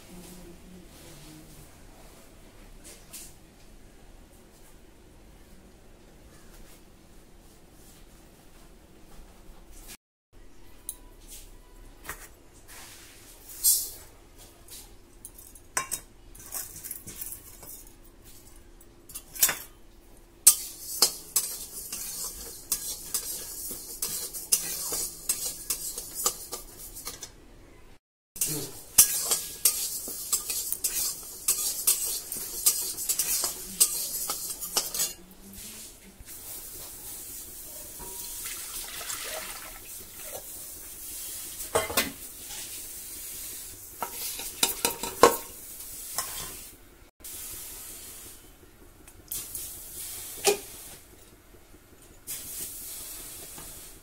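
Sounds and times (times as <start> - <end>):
metal spatula scraping iron pan: 20.5 - 27.4, 28.4 - 35.2, 37.9 - 38.4, 44.0 - 46.7.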